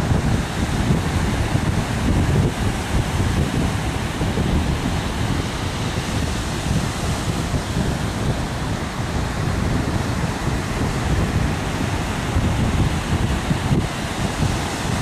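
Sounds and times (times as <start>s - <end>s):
surf breaking on beach: 0.0s - 15.0s
wind buffeting microphone: 0.0s - 15.0s.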